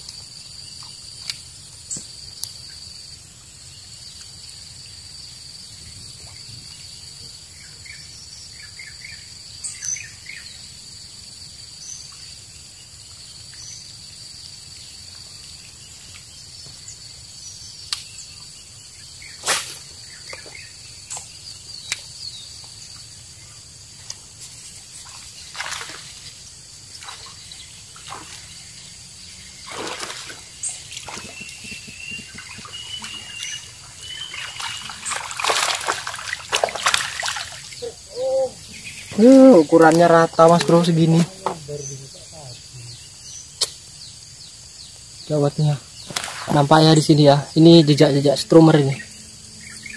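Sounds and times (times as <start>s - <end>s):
high-pitched insect drone: 2.8s - 49.9s
bird chirps: 27.0s - 35.8s, 36.6s - 49.9s
lure splashing in water: 29.6s - 37.8s.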